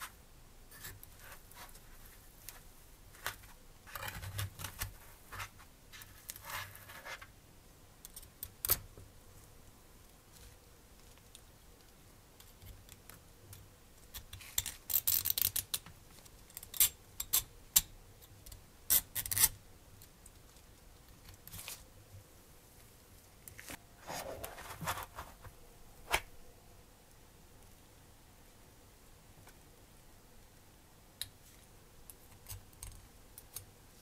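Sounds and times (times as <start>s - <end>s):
scratchy rustle in foam: 24.0s - 25.5s.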